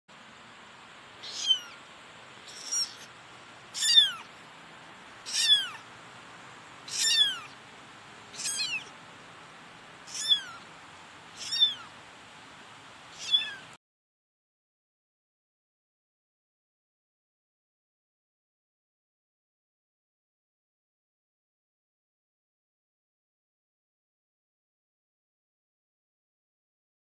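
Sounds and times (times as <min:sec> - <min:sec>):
kitten meowing: 0:01.2 - 0:01.8, 0:02.4 - 0:03.1, 0:03.7 - 0:04.3, 0:05.2 - 0:05.9, 0:06.9 - 0:07.6, 0:08.3 - 0:08.9, 0:10.1 - 0:10.7, 0:11.3 - 0:12.0, 0:13.1 - 0:13.8.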